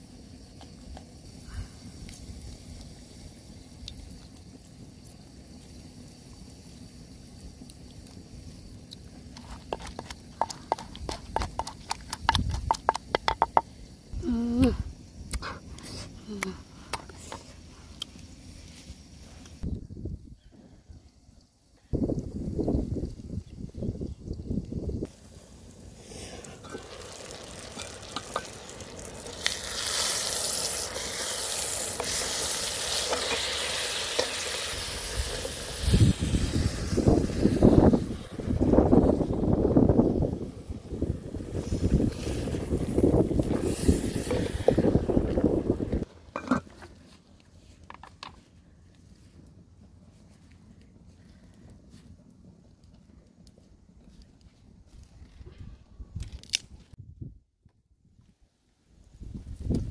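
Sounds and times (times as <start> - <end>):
wooden spatula tapping pot: 9.8 - 13.6
person humming: 14.2 - 14.9, 16.2 - 16.6
food sizzling in a pot: 25.0 - 46.8.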